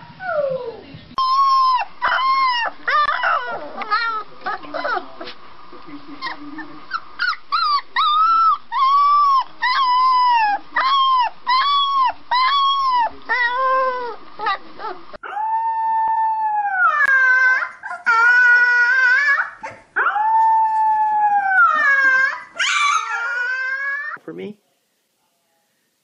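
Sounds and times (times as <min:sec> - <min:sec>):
puppy yelping howls: 0:00.3 - 0:04.2, 0:07.2 - 0:14.6, 0:15.2 - 0:24.2
puppy long drawn-out howls: 0:15.2 - 0:24.2.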